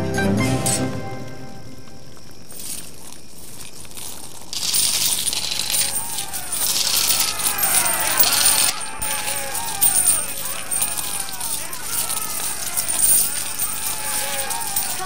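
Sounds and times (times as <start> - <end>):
coins clinking and jingling: 0.6 - 0.8, 2.4 - 15.0
crowd cheering: 5.4 - 15.0.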